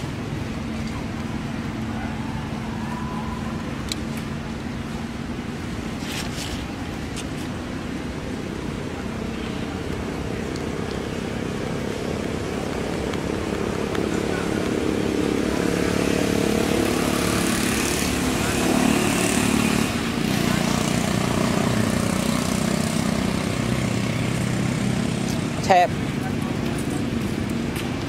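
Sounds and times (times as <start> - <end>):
rustling: 6.0 - 7.6.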